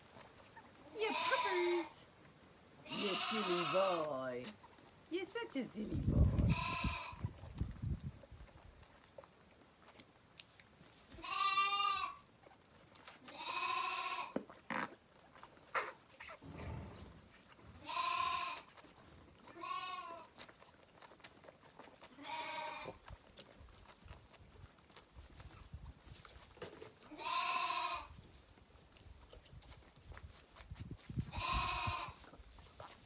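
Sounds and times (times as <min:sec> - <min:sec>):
lambs bleating: 0:01.0 - 0:02.0, 0:02.8 - 0:04.2, 0:06.3 - 0:07.2, 0:11.2 - 0:12.2, 0:13.3 - 0:14.4, 0:17.8 - 0:18.7, 0:19.5 - 0:20.3, 0:22.1 - 0:23.0, 0:27.1 - 0:28.1, 0:31.3 - 0:32.2.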